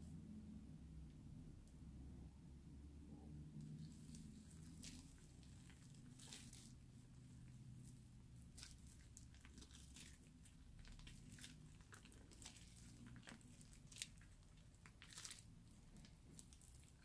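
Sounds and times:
slime crackling and squishing: 3.6 - 17.0.

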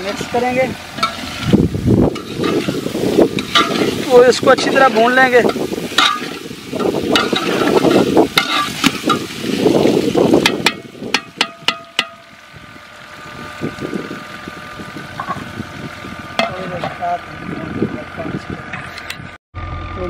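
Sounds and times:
food sizzling: 0.0 - 17.3
ladle scraping pot: 0.8 - 9.6.

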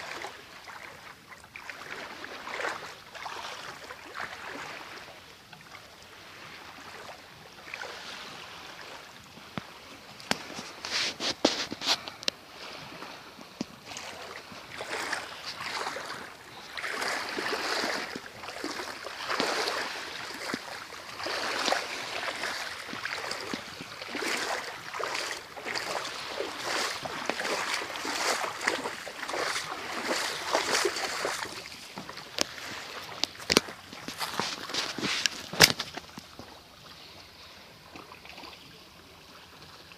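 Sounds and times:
waves washing onto rocky shore: 12.0 - 36.0.

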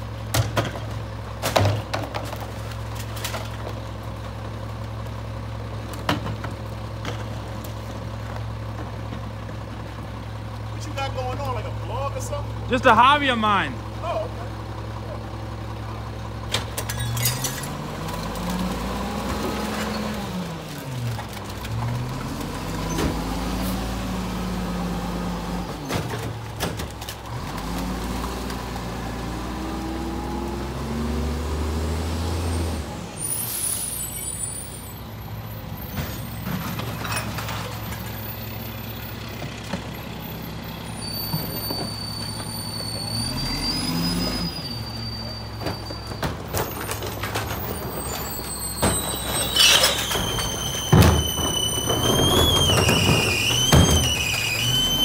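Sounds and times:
garbage truck diesel engine: 0.0 - 55.0
thin high squeal: 33.2 - 35.0, 40.8 - 46.8, 47.7 - 55.0.

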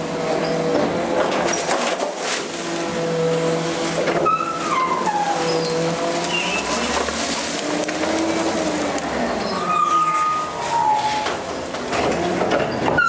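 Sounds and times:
branches crackling being crushed: 0.0 - 12.5
hydraulic packer whining: 0.0 - 13.0
squealing tone sliding down: 9.3 - 11.4.

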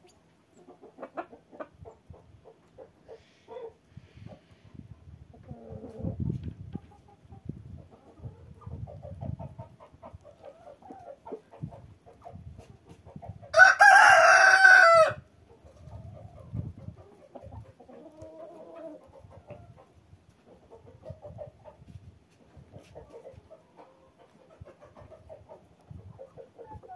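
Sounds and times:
chickens clucking: 0.0 - 13.6, 15.4 - 26.9
rooster crowing: 13.5 - 15.2.

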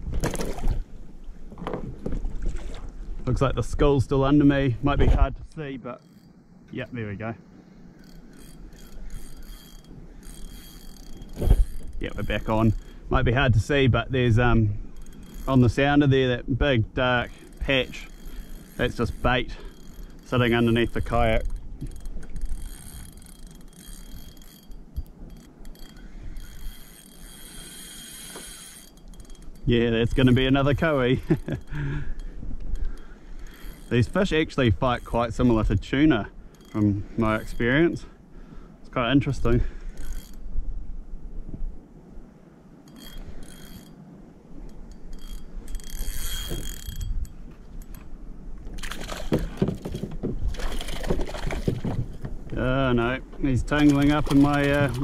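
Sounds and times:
fishing reel clicking and whirring: 6.0 - 16.3, 17.0 - 35.8, 36.5 - 38.0, 39.5 - 40.5, 42.8 - 48.1, 53.7 - 55.0
knocks and rattles: 48.8 - 52.7.

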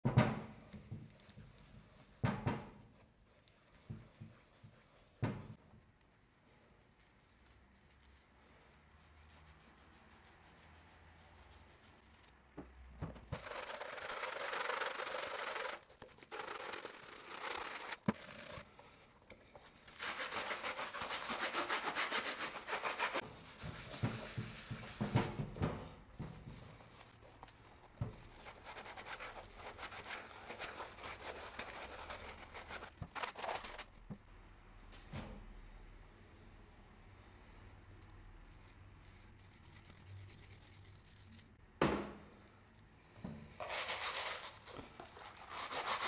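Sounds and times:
sponge scrubbing leather: 13.4 - 18.6, 19.8 - 25.1, 28.2 - 33.8, 43.6 - 46.0.

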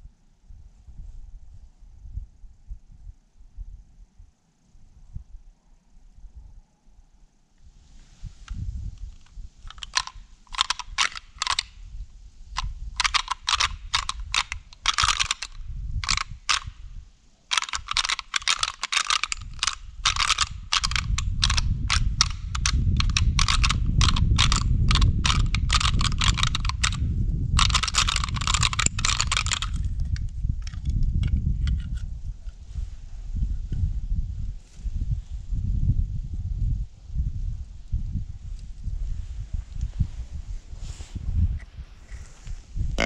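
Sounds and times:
antlers clicking together: 9.0 - 11.8, 12.6 - 16.8, 17.5 - 27.0, 27.6 - 32.0.

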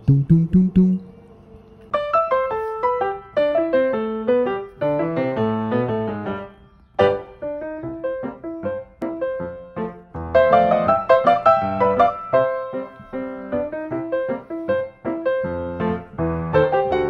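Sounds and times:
keyboard music: 0.0 - 1.4.

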